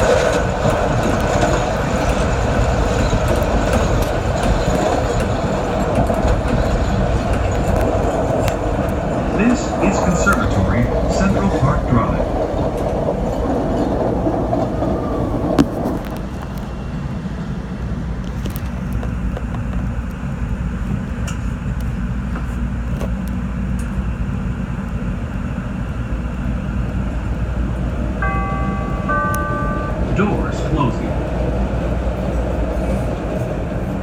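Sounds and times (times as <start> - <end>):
train low rumble: 0.0 - 34.0
train slowing to a stop: 0.0 - 34.0
two-note falling chime: 28.2 - 31.0.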